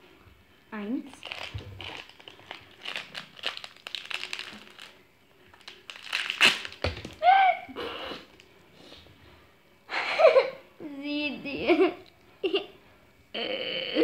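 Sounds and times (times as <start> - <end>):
plastic wrappers crinkling: 1.0 - 7.2.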